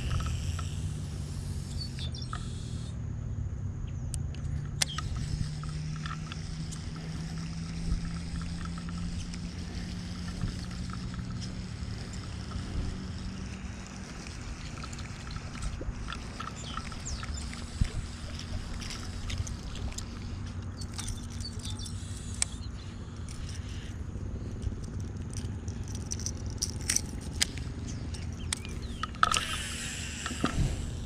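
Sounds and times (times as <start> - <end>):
fishing reel cranking: 0.0 - 3.0, 4.4 - 31.0
steady low rumble: 0.0 - 31.0
sharp click: 4.2 - 9.6.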